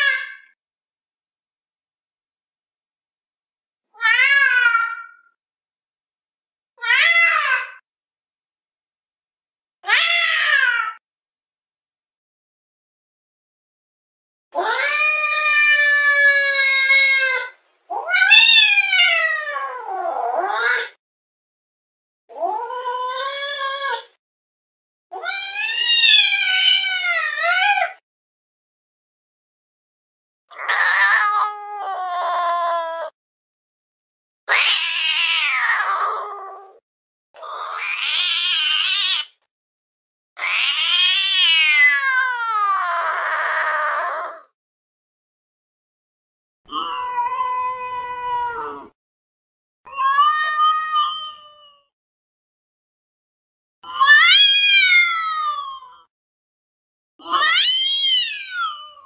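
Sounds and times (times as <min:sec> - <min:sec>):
cat meowing: 0:04.0 - 0:05.3, 0:09.8 - 0:11.0, 0:14.6 - 0:21.0, 0:25.2 - 0:28.0, 0:30.6 - 0:33.1, 0:34.5 - 0:36.8, 0:37.4 - 0:39.4, 0:40.4 - 0:44.5, 0:46.7 - 0:49.0, 0:49.9 - 0:51.9, 0:53.8 - 0:56.0, 0:57.2 - 0:59.0.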